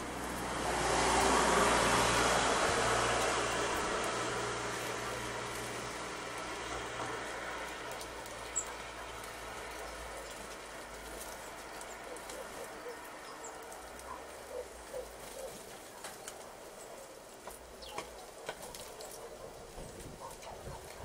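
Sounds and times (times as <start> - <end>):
small birds high calls: 6.6 - 21.0.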